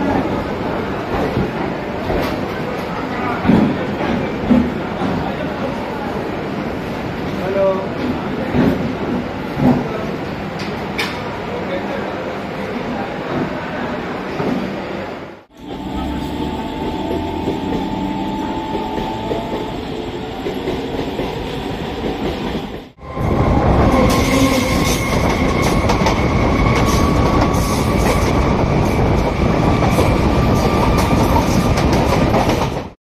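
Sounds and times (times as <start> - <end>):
electric train rumbling: 13.2 - 33.0
train whining: 14.2 - 33.0.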